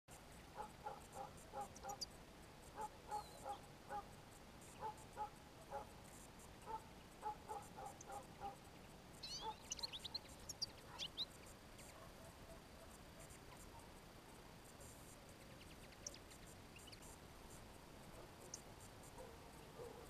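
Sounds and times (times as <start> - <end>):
songbirds twittering: 0.1 - 20.0
low bird calls: 0.5 - 2.1, 2.8 - 4.1, 6.6 - 12.7.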